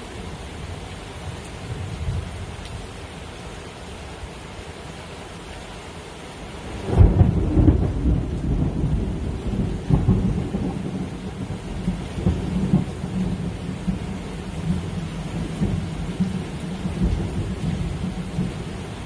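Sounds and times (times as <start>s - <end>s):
rain hissing: 0.0s - 19.0s
thunder rumbling: 6.8s - 19.0s.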